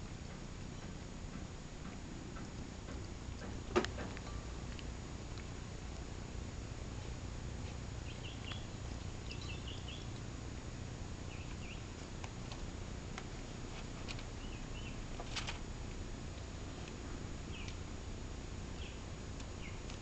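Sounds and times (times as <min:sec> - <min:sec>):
steady low hum: 0:00.0 - 0:20.0
small bird chirping: 0:08.0 - 0:10.3, 0:11.2 - 0:12.0, 0:14.4 - 0:15.0, 0:17.4 - 0:17.8, 0:18.7 - 0:20.0.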